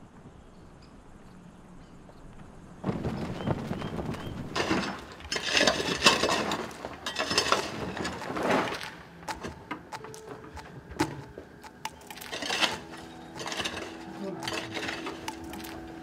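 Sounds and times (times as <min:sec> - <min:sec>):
pick striking stony rubble: 0:04.5 - 0:16.0
stones clicking: 0:04.6 - 0:16.0.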